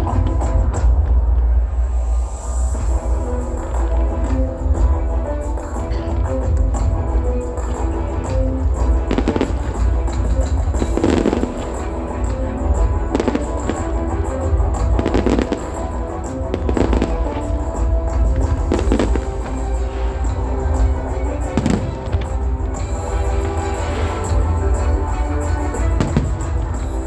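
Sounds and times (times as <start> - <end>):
music playing: 0.0 - 27.0
fireworks booming and crackling: 7.7 - 24.9, 25.6 - 27.0.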